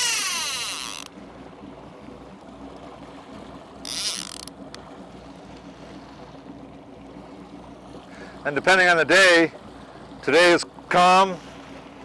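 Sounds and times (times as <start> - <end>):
fishing reel ratcheting: 0.0 - 1.1, 3.8 - 4.6
boat motor droning: 0.0 - 12.0.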